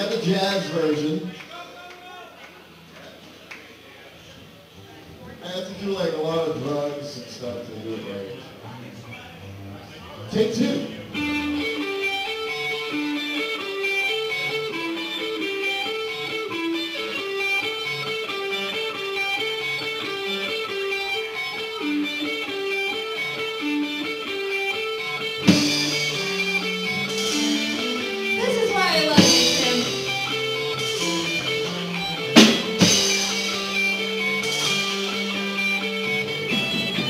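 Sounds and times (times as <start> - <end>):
electric guitar riff: 4.6 - 37.0
band playing: 9.4 - 37.0.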